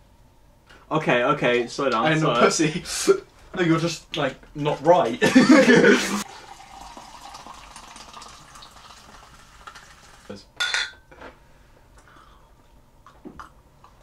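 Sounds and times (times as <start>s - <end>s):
drink pouring with fizzing hiss: 5.6s - 10.4s
glasses clinking: 10.6s - 11.1s.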